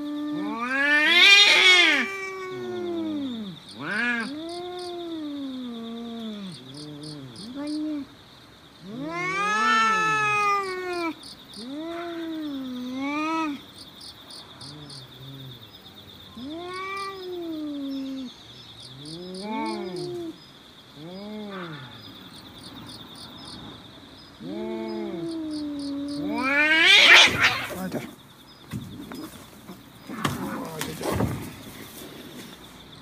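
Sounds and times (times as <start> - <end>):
cats yowling: 0.0 - 8.1, 8.8 - 13.7, 16.3 - 18.3, 19.0 - 20.4, 21.0 - 22.1, 24.4 - 28.1
insects buzzing: 0.0 - 33.0.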